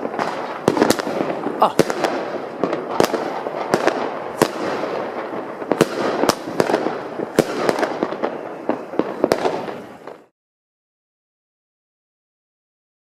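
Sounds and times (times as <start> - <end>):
fireworks crackling and banging: 0.0 - 10.3.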